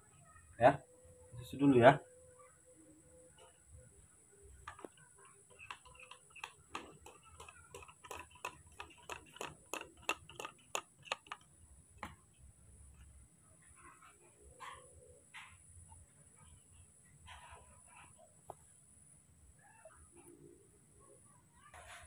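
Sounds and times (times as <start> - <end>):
spoon clicking against plastic cup: 4.7 - 12.2.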